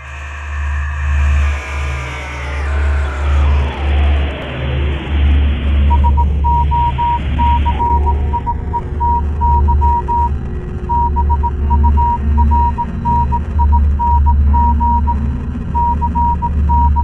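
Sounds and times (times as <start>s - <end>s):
deep bass drone: 0.0s - 17.0s
high beeps like morse code: 5.9s - 17.0s.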